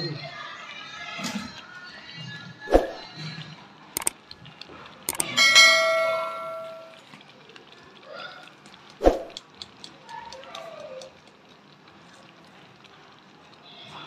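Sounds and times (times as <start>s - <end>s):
metallic ring: 5.1s - 7.0s.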